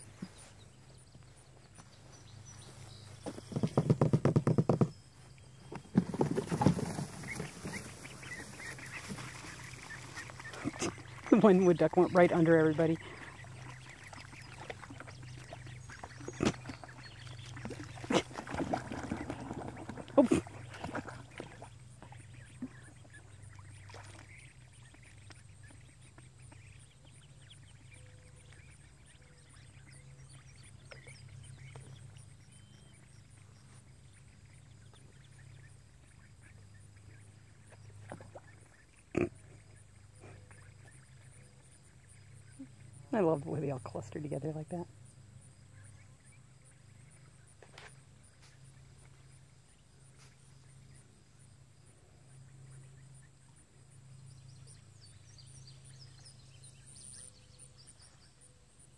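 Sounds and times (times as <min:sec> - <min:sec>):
ducks quacking softly: 0:06.6 - 0:32.2, 0:32.9 - 0:44.9
steady low hum: 0:06.9 - 0:58.9.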